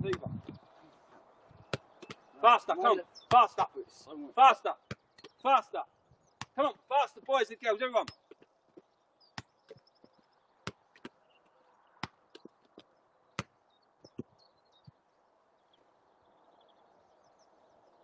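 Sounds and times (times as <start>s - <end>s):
football being kicked: 0.0s - 0.4s, 1.7s - 2.2s, 4.8s - 5.4s, 6.4s - 6.6s, 10.6s - 11.2s.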